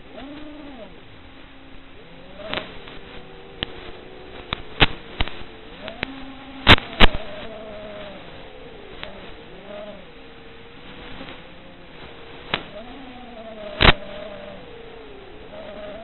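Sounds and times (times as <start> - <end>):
quadcopter propellers buzzing: 0.0 - 16.0
radio static crackles: 0.0 - 16.0.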